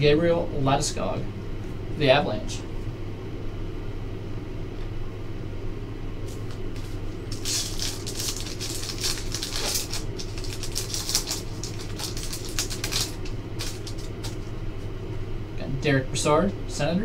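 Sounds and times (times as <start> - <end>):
steady low hum: 0.0 - 17.0
foil wrapper crinkling: 6.3 - 14.6.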